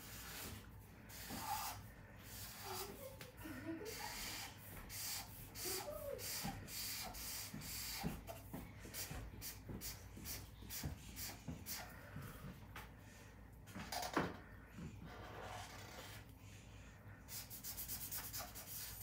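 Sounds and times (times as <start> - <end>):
marker scratching on paper: 0.0 - 3.1, 4.0 - 11.9, 17.3 - 19.0.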